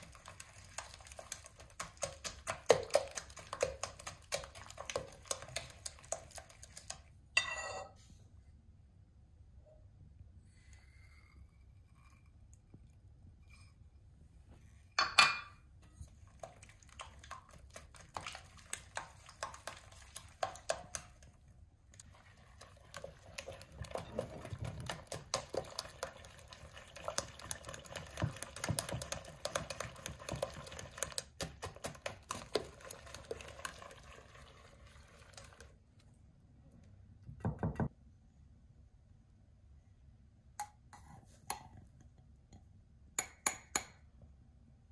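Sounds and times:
whisk beating eggs in glass bowl: 0.0s - 7.1s, 16.1s - 35.8s.

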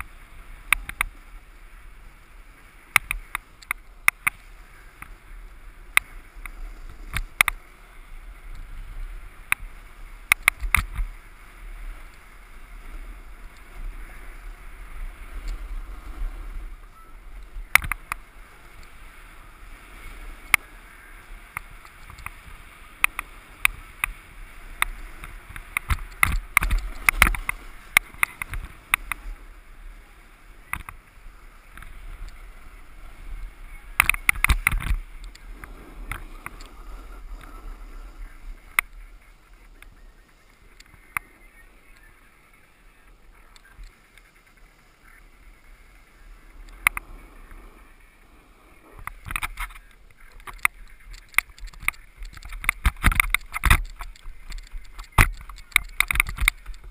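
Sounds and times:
snowboard scraping on snow: 0.0s - 42.5s, 44.0s - 49.2s.

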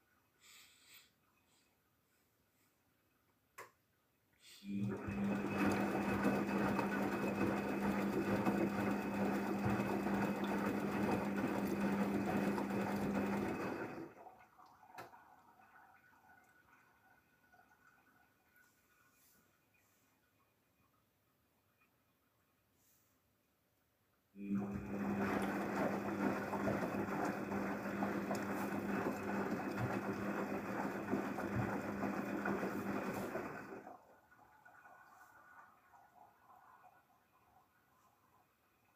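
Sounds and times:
washing machine motor hum: 4.6s - 19.8s, 24.4s - 38.8s.

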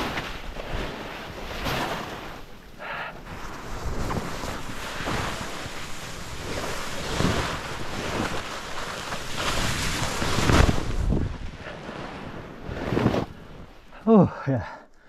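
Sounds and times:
snowboard sliding through snow: 0.0s - 13.8s
wind buffeting microphone: 3.3s - 13.7s.

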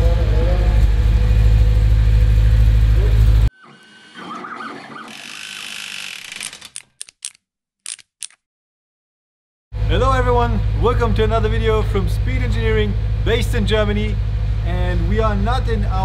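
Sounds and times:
car engine idling: 0.0s - 3.5s, 9.8s - 16.0s
mechanical whirring of gears: 3.2s - 8.4s
sharp clicks: 6.0s - 8.4s.

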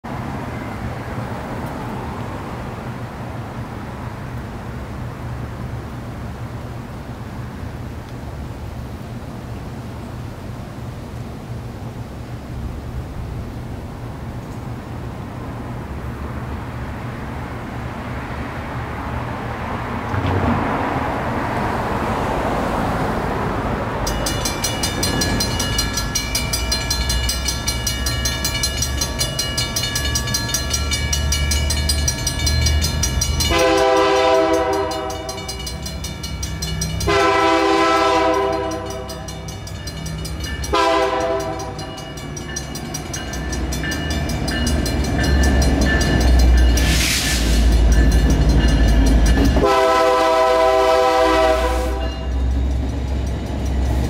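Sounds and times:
crossing bells clanging: 23.9s - 54.0s
train horn blasts: 33.4s - 35.8s, 37.0s - 39.5s, 40.7s - 42.0s, 49.5s - 52.4s.

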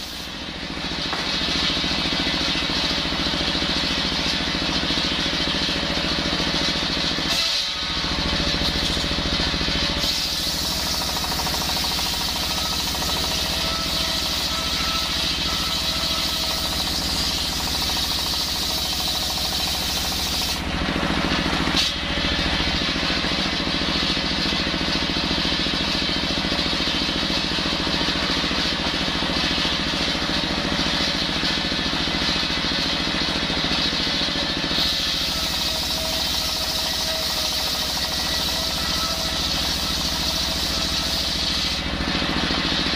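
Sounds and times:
diesel engine running: 0.0s - 42.9s
circular saw cutting log: 7.2s - 20.7s, 34.7s - 41.9s.

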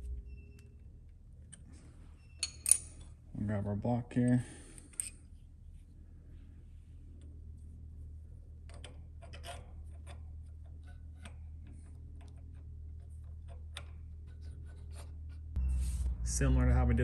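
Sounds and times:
steady low hum: 0.0s - 17.0s
metal parts clicking and tapping: 2.4s - 3.1s.

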